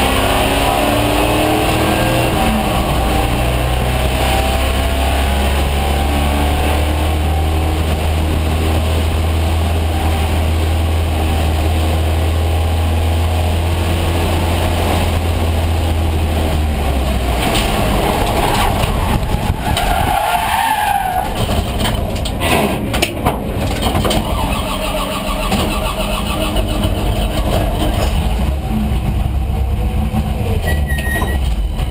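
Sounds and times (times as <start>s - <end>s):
race car engine running hard: 20.8s - 31.9s
knocks and rattles: 21.2s - 24.4s.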